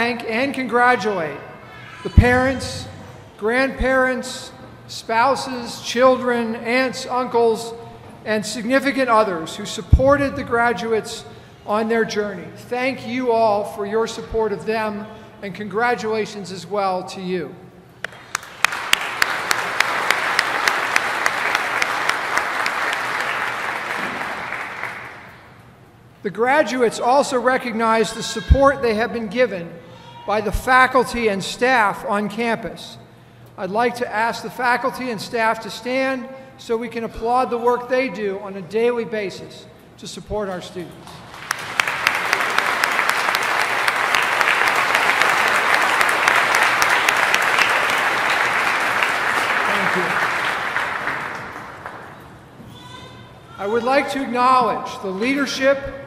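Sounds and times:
audience applauding: 18.0s - 25.4s, 41.1s - 52.2s
close sharp hand claps: 18.0s - 25.4s, 41.0s - 52.2s.

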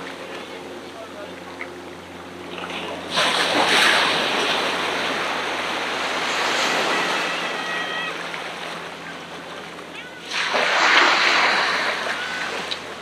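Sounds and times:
wave breaking on beach: 3.1s - 13.0s.

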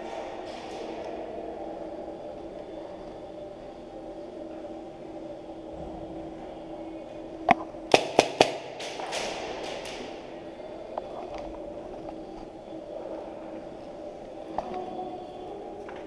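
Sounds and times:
steady hum: 0.0s - 16.0s
airsoft gun shots: 7.9s - 10.0s.

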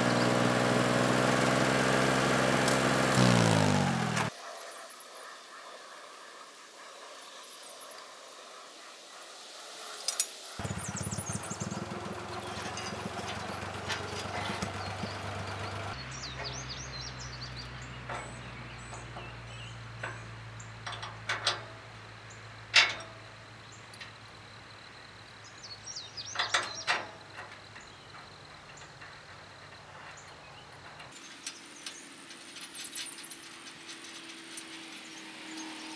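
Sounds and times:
birds chirping: 0.0s - 2.3s, 9.8s - 21.0s, 23.4s - 35.9s
low engine hum: 0.0s - 4.3s, 10.6s - 22.6s
metal clanks and knocks: 10.6s - 16.5s, 18.0s - 19.4s, 20.0s - 21.9s, 22.7s - 23.3s, 26.3s - 34.7s.

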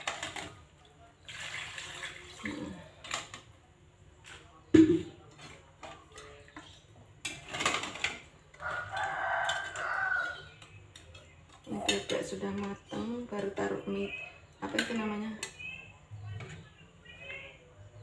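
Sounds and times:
water poured into a wok: 1.2s - 2.8s.

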